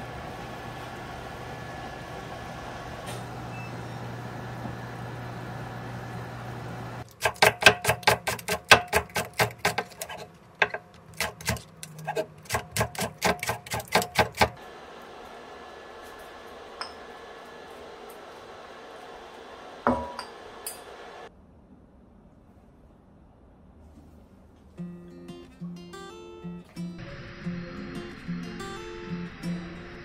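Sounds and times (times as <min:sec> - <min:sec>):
cooling fan hum: 0:00.0 - 0:21.3, 0:25.9 - 0:30.0
knife chopping on wooden board: 0:07.2 - 0:14.6.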